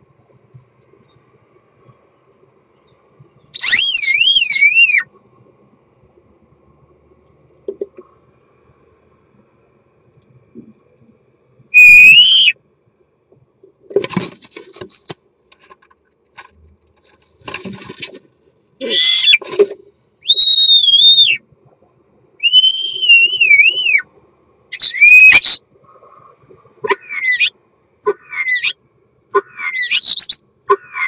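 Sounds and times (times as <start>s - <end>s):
starling whistling song: 2.3s - 5.1s, 11.7s - 12.6s, 18.8s - 19.4s, 20.2s - 21.4s, 22.4s - 24.1s, 24.7s - 25.6s, 26.9s - 28.8s, 29.4s - 31.0s.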